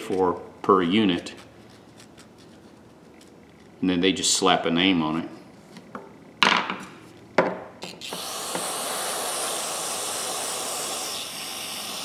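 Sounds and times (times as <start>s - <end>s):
aerosol spray can hissing: 8.2s - 12.0s.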